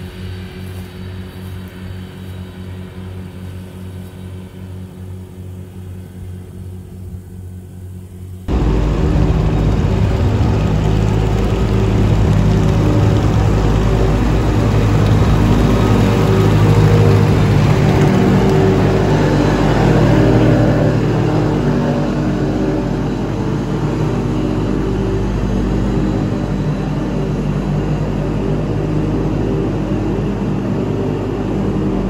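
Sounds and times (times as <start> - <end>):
diesel loader engine running: 0.0 - 32.0
tractor engine under load: 8.5 - 28.8.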